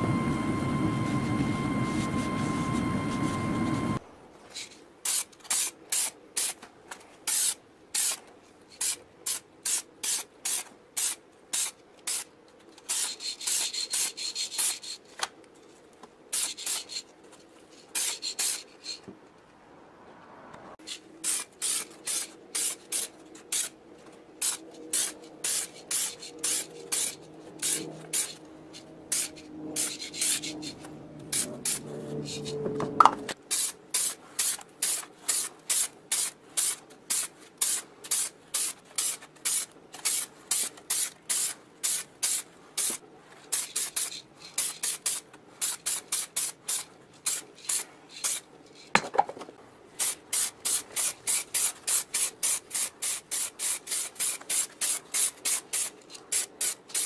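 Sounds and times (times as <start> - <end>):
spray paint can hissing: 5.0 - 6.6, 7.3 - 12.3, 12.9 - 15.0, 16.3 - 17.0, 17.9 - 18.7, 20.8 - 23.7, 24.4 - 28.4, 29.1 - 32.5, 33.5 - 48.4, 50.0 - 57.0.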